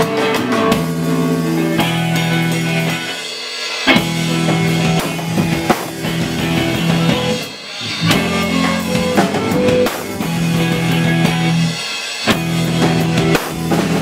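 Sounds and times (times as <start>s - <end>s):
live rock band: 0.0s - 14.0s
drum hit: 4.0s - 10.7s.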